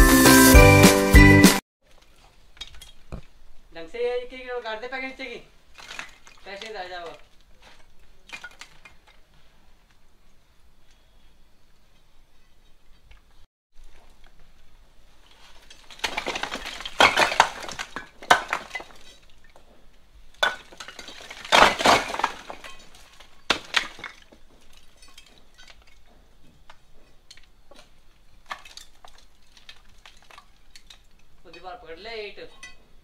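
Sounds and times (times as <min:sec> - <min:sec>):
bricks clattering onto rubble: 0:05.7 - 0:09.3, 0:15.4 - 0:31.4.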